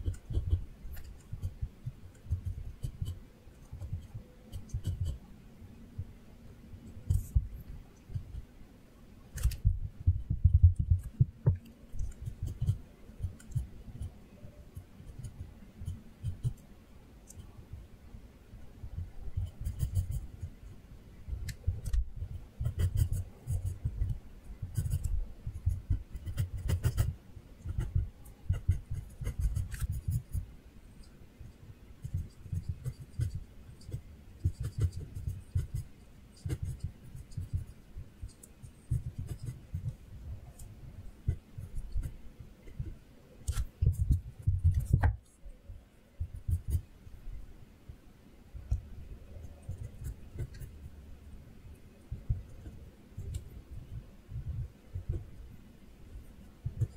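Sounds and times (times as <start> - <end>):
pencil scratching on paper: 0.0 - 5.2, 12.0 - 14.2, 19.4 - 20.5, 22.6 - 24.1, 24.7 - 30.4, 32.0 - 40.0.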